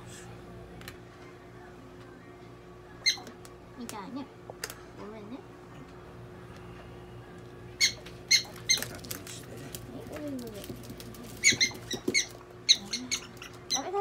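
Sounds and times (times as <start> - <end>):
prairie dog chirping: 3.0 - 3.4, 7.8 - 9.0, 11.3 - 14.0.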